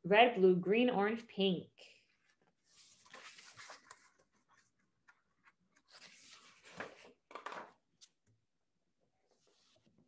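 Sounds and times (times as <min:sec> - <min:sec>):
book pages rustling: 0:02.2 - 0:08.3.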